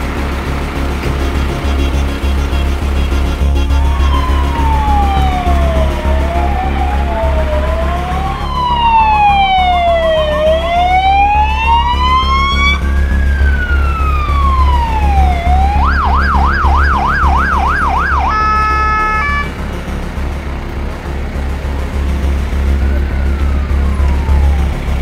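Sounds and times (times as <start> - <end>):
emergency sirens wailing: 0.0 - 25.0
low engine rumble: 0.0 - 25.0
steady siren tone: 0.0 - 25.0
siren yelp: 3.4 - 19.6, 22.7 - 25.0.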